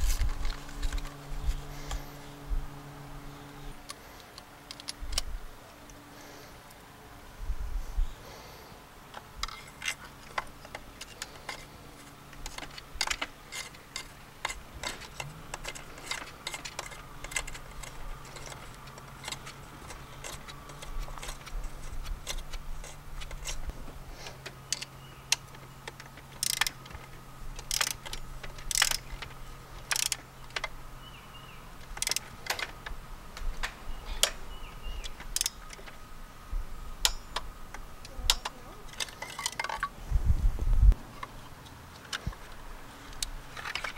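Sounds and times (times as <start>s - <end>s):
ratchet clicks: 9.4s - 23.6s, 24.7s - 30.8s, 31.8s - 36.0s.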